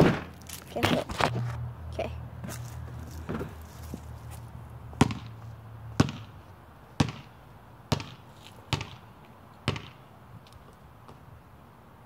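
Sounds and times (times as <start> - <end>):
basketball bouncing on concrete: 4.9 - 6.4, 7.0 - 10.0.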